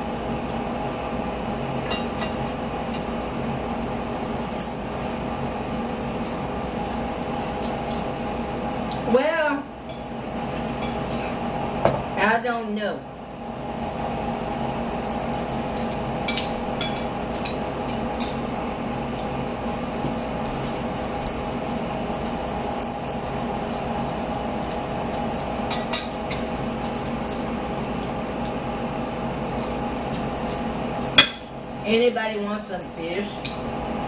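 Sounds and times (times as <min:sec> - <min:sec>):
steady hum: 0:00.0 - 0:34.0
forks clinking on plates: 0:06.2 - 0:08.4, 0:13.8 - 0:17.6, 0:19.8 - 0:27.5, 0:29.6 - 0:33.6.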